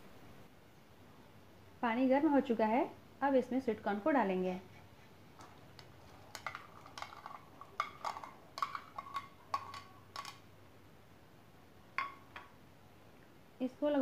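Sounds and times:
spoon clinking against bowl: 6.3 - 10.4, 12.0 - 12.5.

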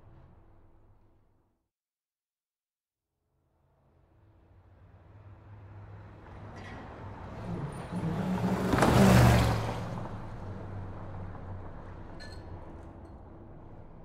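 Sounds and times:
traffic noise: 4.2 - 14.0
vehicle passing by: 4.8 - 12.8.

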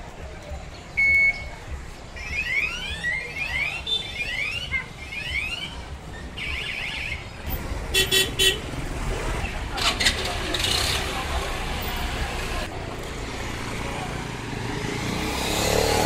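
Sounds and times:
scooter traffic: 0.0 - 16.0
horn beeps: 1.0 - 1.6.

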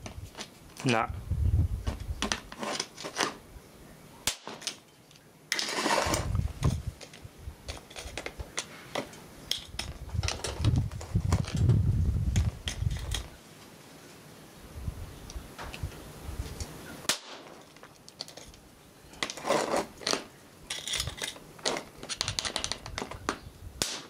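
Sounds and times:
sharp electrical clicks and snaps: 4.2 - 13.3, 15.3 - 19.4
hissing electrical crackle: 5.5 - 22.2, 22.8 - 24.0.

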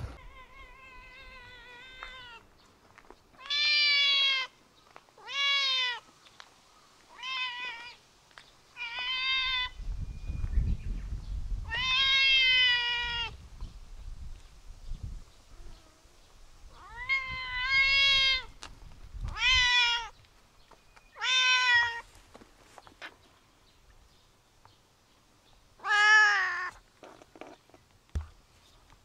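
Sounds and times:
cat meowing: 0.0 - 2.4, 3.4 - 4.5, 5.2 - 6.0, 7.1 - 8.0, 8.8 - 9.8, 11.6 - 13.4, 16.7 - 18.6, 19.3 - 20.2, 21.2 - 22.1, 25.8 - 26.8.

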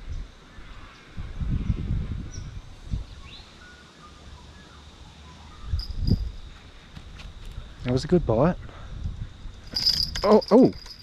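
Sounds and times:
faint bird chirps: 2.3 - 6.4
fishing rod bite bell ringing: 5.8 - 6.4, 9.7 - 11.0.

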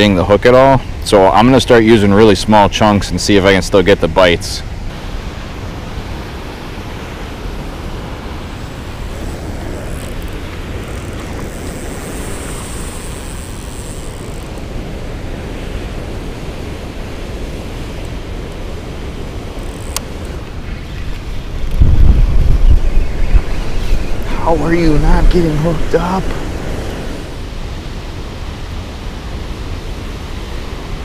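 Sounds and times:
wind rumble on microphone: 0.0 - 31.0
water rushing over spillway: 23.9 - 31.0.

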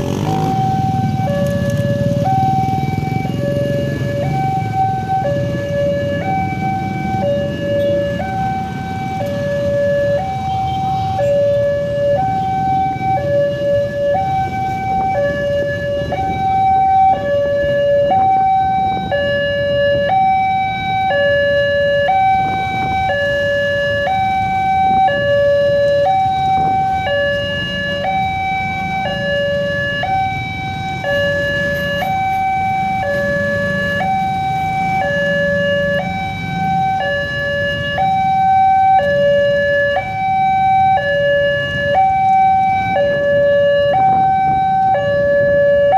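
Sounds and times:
low rumble of road traffic: 0.0 - 45.9.

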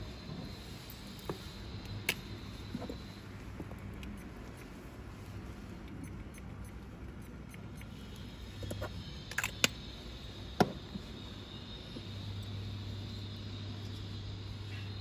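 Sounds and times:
low steady hum: 0.0 - 15.0
sharp click: 8.6 - 9.8.

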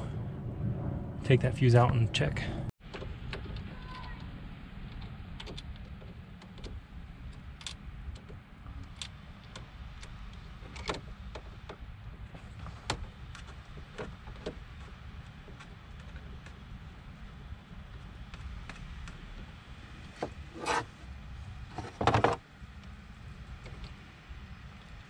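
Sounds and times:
low rumble: 0.0 - 11.2.

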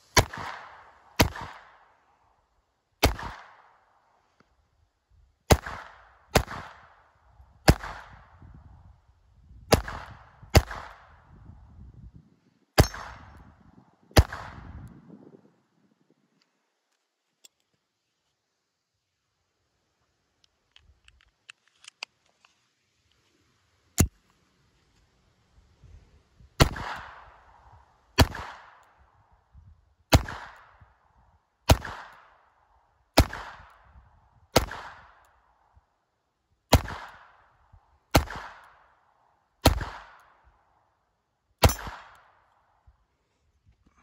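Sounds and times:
pistol shots with echo: 0.1 - 1.9, 3.0 - 3.7, 5.5 - 7.0, 7.7 - 8.3, 9.7 - 11.2, 12.8 - 13.4, 14.2 - 14.7, 26.6 - 27.6, 28.2 - 28.8, 30.1 - 30.8, 31.7 - 32.3, 33.2 - 33.8, 34.6 - 35.2, 36.7 - 37.4, 38.1 - 38.9, 39.6 - 40.4, 41.6 - 42.4
gun handling clicks: 20.4 - 22.6.

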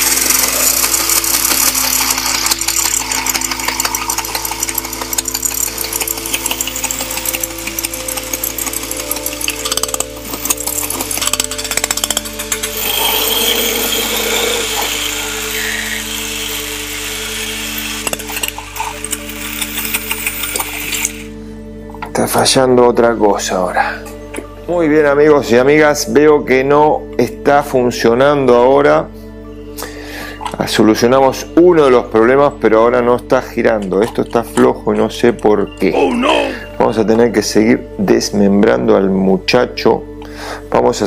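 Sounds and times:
toy robot motor clattering: 0.0 - 21.3
background music: 0.0 - 41.0.

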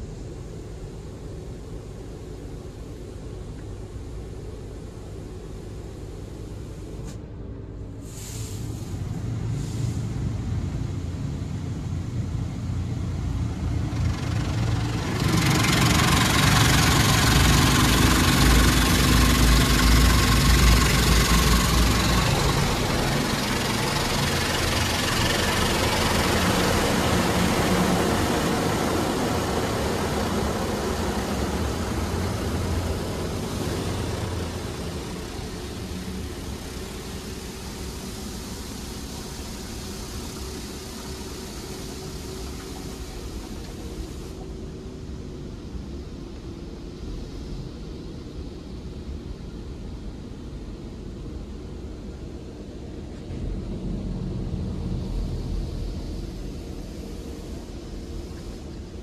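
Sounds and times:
water spray hissing on car: 8.0 - 44.5.

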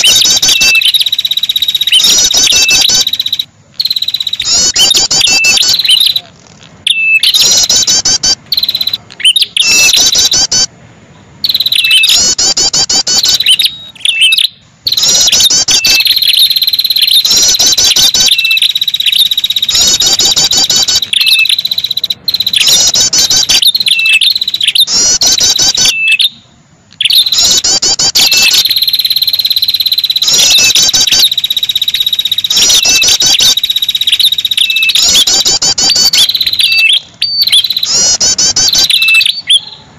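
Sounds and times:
bird chattering trills: 0.0 - 10.7, 11.4 - 39.9
steady high buzzing tone: 14.8 - 39.0.

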